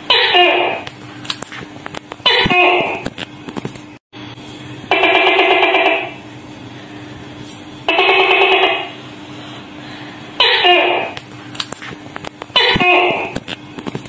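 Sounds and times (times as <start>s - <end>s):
faint steady hum: 0.0s - 14.0s
gecko calling: 10.4s - 11.2s.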